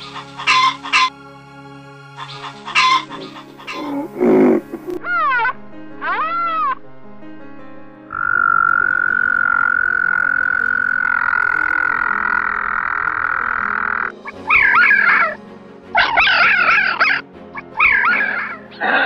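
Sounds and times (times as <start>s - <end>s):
fox yelping: 2.7s - 6.8s, 11.1s - 15.4s, 16.0s - 18.9s
frog trilling: 2.8s - 5.0s, 8.1s - 15.3s.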